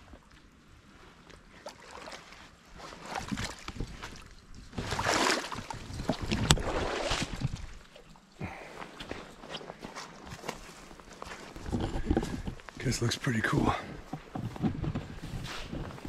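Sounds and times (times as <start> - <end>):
footsteps wading through water: 0.0 - 13.1.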